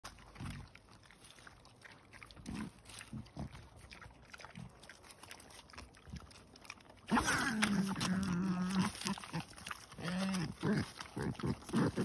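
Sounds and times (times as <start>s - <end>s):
wild boars grunting: 7.0s - 12.0s.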